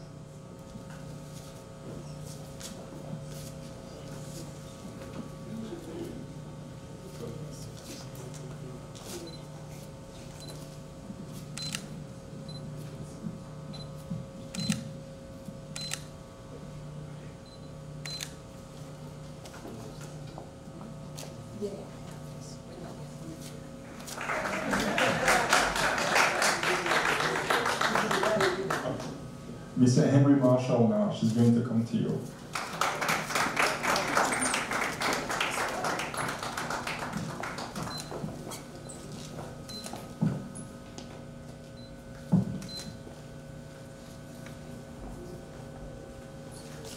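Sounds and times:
steady low hum: 0.0s - 46.9s
audience applauding: 24.1s - 29.2s, 32.5s - 37.9s.

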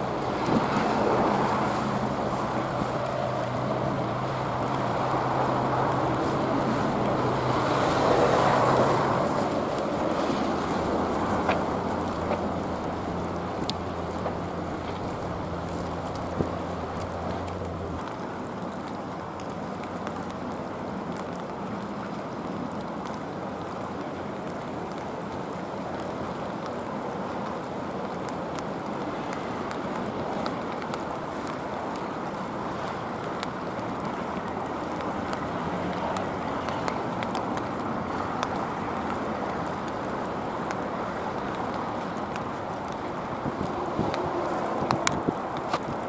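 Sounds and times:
wind noise on microphone: 0.0s - 18.1s, 29.0s - 46.0s.

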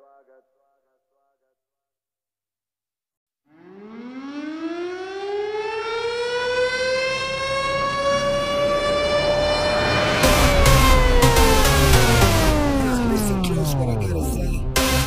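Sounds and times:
siren winding up to wail: 3.5s - 15.0s.

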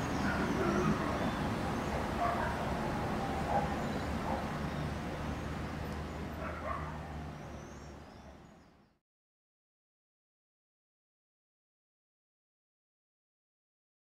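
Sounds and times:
background ambience: 0.0s - 8.0s
dog barking: 0.2s - 1.2s, 2.2s - 4.6s, 6.4s - 7.2s.

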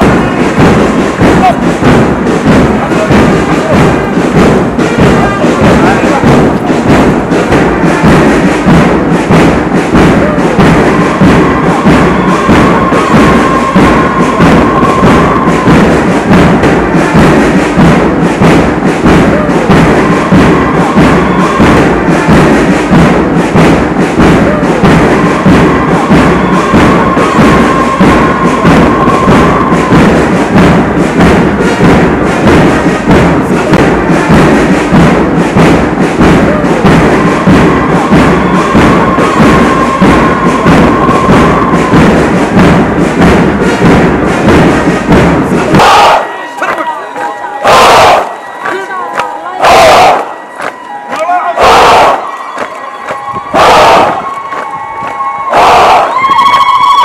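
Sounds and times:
music with heavy beat: 0.0s - 57.0s.

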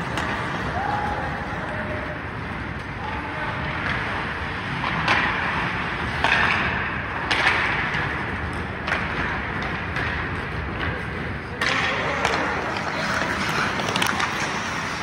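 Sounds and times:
hockey sticks and puck clacking: 0.0s - 15.0s
skate blades scraping on ice: 0.0s - 15.0s
steady rink hum: 0.0s - 15.0s.

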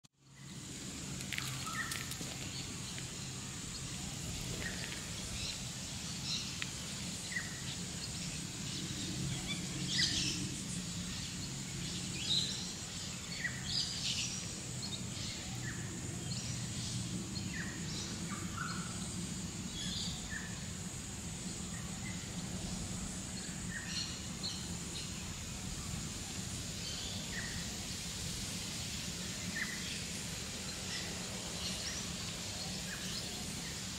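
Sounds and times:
birds chirping: 0.2s - 20.7s.

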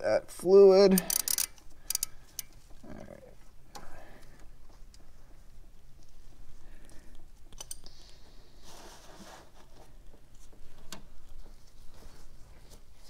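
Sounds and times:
socket wrench clicking: 1.0s - 2.6s
short rustle: 7.9s - 13.0s.

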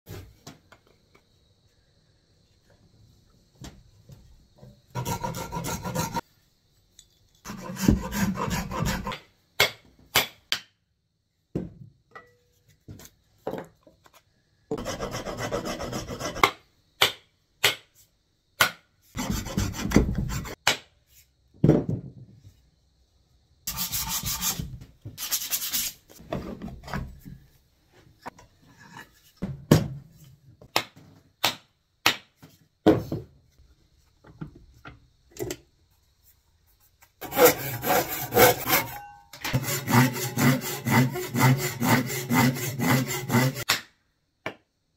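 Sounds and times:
hand saw cutting wood: 5.0s - 6.2s, 7.5s - 9.2s, 37.2s - 43.6s
rasp strokes on wood: 5.0s - 6.2s, 7.5s - 9.2s, 14.8s - 16.4s, 37.2s - 39.0s, 39.6s - 43.6s.

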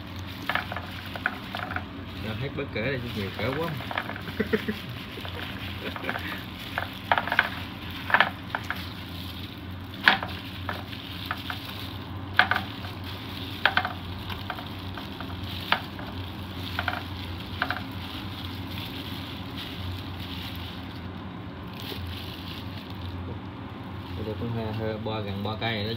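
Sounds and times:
hands squelching wet cabbage: 0.0s - 24.9s
steady low hum: 0.0s - 25.9s.

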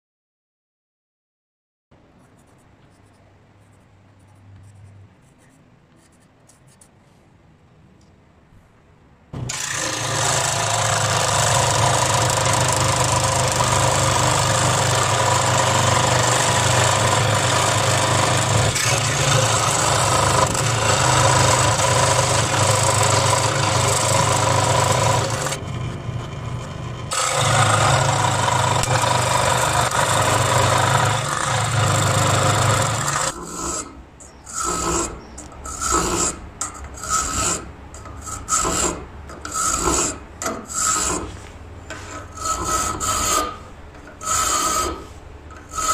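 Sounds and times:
electric scroll saw cutting brass: 9.4s - 41.3s, 42.0s - 45.9s
file rasping across brass: 27.2s - 45.9s.

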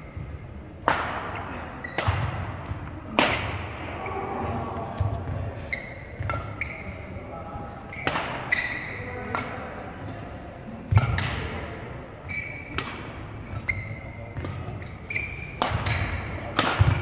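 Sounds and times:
racket hitting shuttlecock: 0.8s - 3.8s, 6.2s - 6.8s, 7.9s - 17.0s
shoes squeaking on wooden floor: 13.5s - 15.5s.

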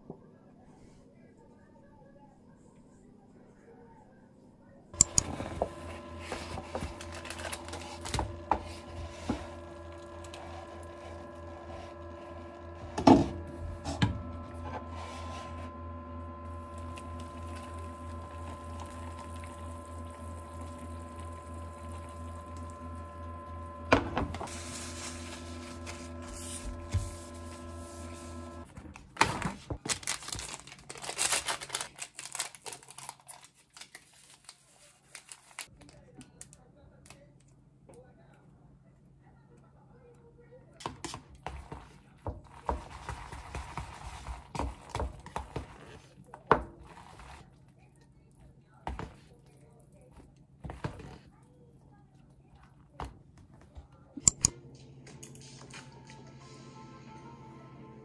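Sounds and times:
hot water pouring into cup: 5.0s - 12.7s, 16.4s - 26.4s
cup and packets rustling: 5.0s - 12.9s, 16.5s - 23.2s, 24.1s - 36.6s
appliance hum: 5.0s - 33.8s, 40.8s - 58.0s
packets crinkling torn open: 6.9s - 8.4s, 28.9s - 37.2s.

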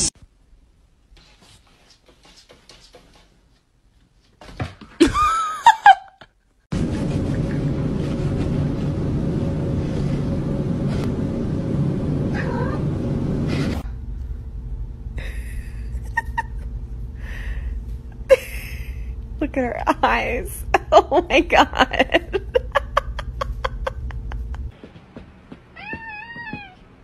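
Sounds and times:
steady noisy hum: 6.7s - 25.8s
cat yowling: 12.3s - 12.9s, 25.8s - 26.8s.

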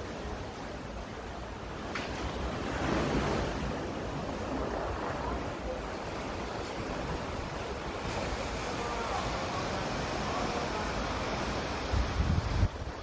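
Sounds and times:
sea surf washing against rocks: 0.0s - 13.0s
wind buffeting microphone: 10.8s - 13.0s.

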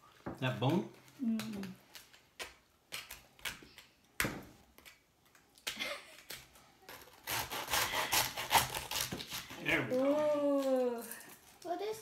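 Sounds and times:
knife sawing through crackling: 6.9s - 9.8s.

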